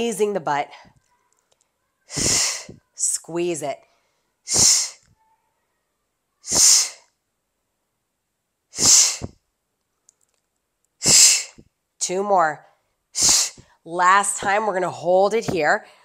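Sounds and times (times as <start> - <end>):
woman's breathy exhalations: 2.1 - 2.8.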